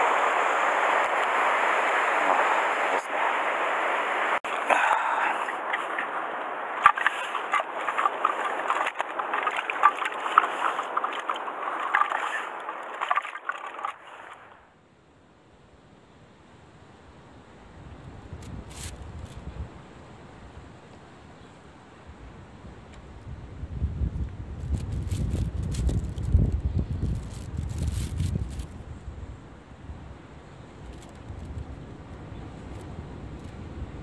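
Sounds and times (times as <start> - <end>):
rough sea surging against rocks: 0.0 - 14.6
handling clicks and rustles: 6.8 - 14.5.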